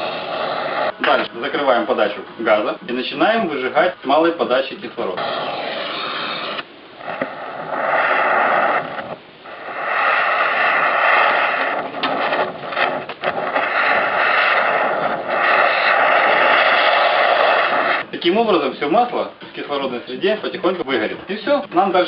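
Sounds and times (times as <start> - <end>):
gas torch hissing: 0.0 - 2.6, 4.1 - 18.1.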